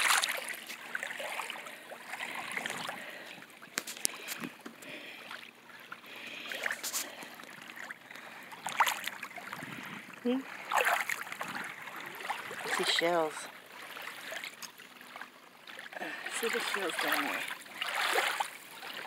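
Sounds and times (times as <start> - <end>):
water lapping and splashing: 0.0 - 19.0.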